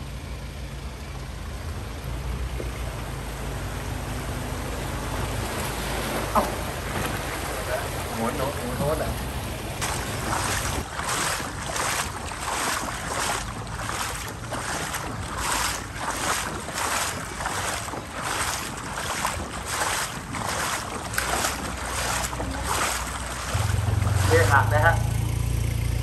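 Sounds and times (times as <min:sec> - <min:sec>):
footsteps splashing through water: 0:05.2 - 0:25.1.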